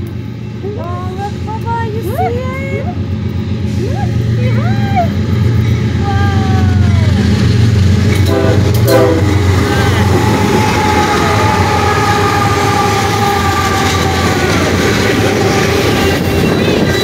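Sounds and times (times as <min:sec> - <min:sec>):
diesel locomotive engines: 0:00.0 - 0:17.0
held horn tone: 0:08.1 - 0:17.0.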